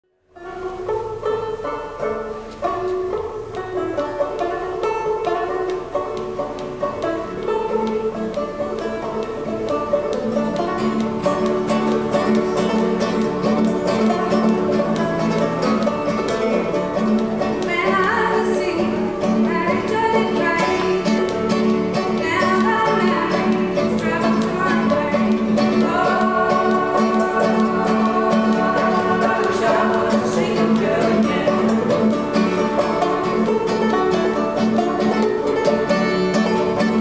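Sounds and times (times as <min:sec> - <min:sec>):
acoustic guitar: 0:00.1 - 0:37.0
banjo: 0:00.2 - 0:37.0
woman and man singing: 0:22.2 - 0:32.6.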